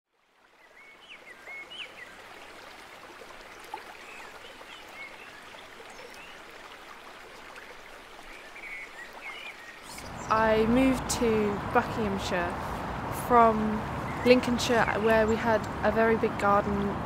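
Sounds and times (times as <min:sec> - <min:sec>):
stream running: 0:00.1 - 0:17.0
small birds chirping: 0:08.3 - 0:17.0.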